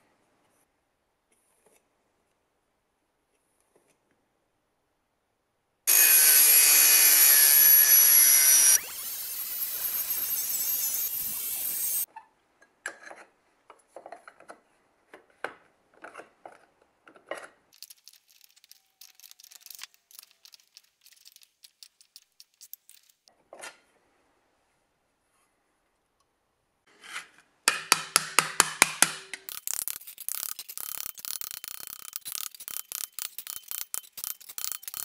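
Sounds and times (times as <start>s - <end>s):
angle grinder cutting copper pipe: 5.9s - 12.1s, 29.5s - 35.0s
thin metal sheet crackling: 17.8s - 23.3s.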